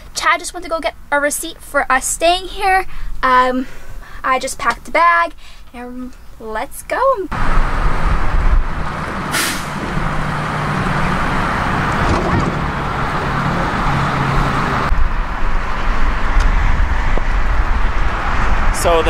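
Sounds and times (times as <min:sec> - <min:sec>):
diesel truck engines rumbling: 0:00.0 - 0:19.0
air brake hiss: 0:09.3 - 0:09.8.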